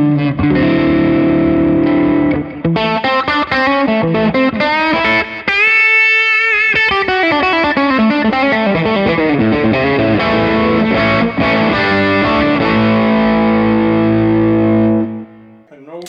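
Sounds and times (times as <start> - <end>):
overdriven electric guitar: 0.0 - 15.6.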